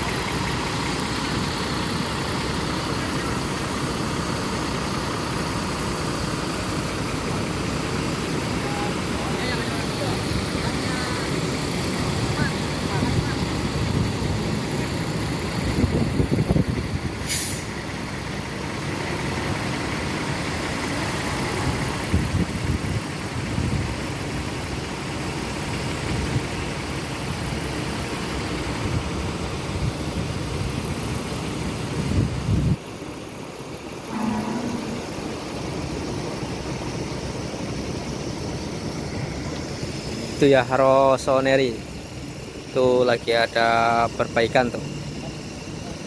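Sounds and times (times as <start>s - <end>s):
bus diesel engines rumbling: 0.0s - 46.0s
sharp air hiss: 17.2s - 17.8s.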